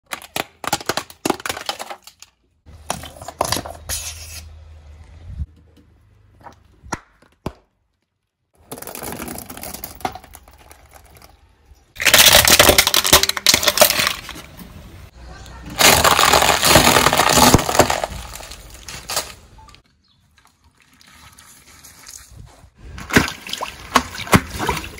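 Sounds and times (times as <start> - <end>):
tyre crushing objects on paving: 0.0 - 4.2, 6.3 - 15.1, 15.7 - 19.8.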